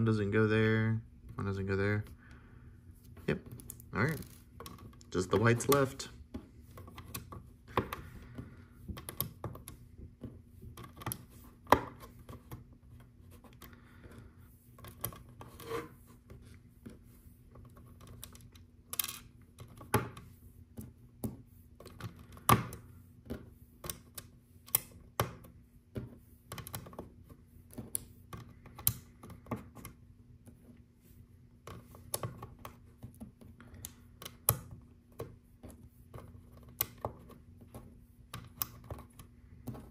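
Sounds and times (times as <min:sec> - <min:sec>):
plastic tiles clicking and tapping: 0:31.6 - 0:39.9.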